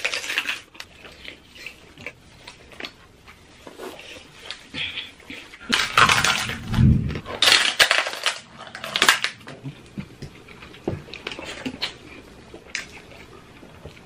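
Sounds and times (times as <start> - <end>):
chewing and mouth smacks: 9.5 - 14.0.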